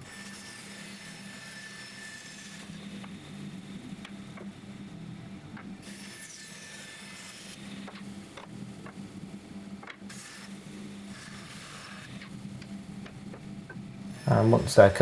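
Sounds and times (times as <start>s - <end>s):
bandsaw motor hum: 0.0s - 15.0s
bandsaw cutting timber: 5.8s - 8.0s, 10.1s - 12.3s, 14.1s - 15.0s.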